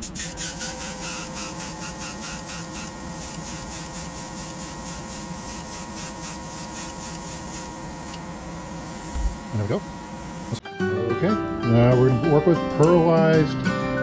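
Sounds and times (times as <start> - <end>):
airbrush spraying hiss: 0.0 - 10.6
airbrush compressor hum: 0.0 - 10.7.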